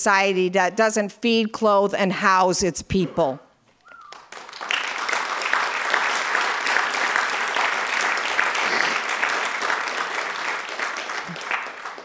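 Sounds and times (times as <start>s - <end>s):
audience applauding: 3.9s - 12.0s.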